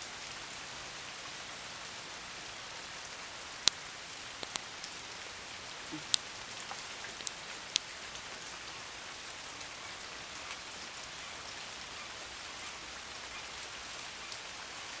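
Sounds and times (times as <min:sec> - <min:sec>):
rain on water and pavement: 0:00.0 - 0:15.0
sharp ticks: 0:04.4 - 0:04.6.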